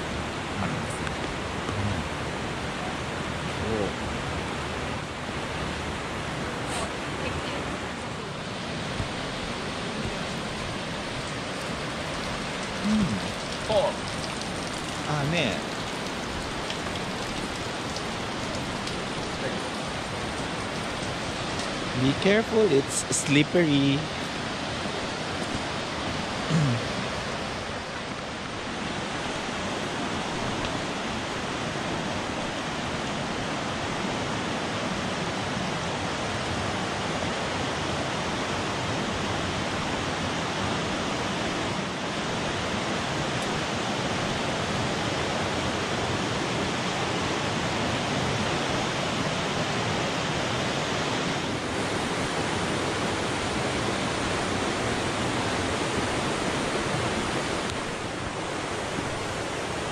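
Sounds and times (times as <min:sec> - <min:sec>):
river pouring over rocky rapids: 0:00.0 - 0:59.9.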